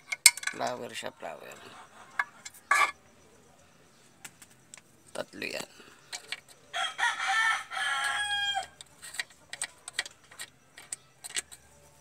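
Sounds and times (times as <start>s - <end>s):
rooster crowing: 6.7s - 8.8s.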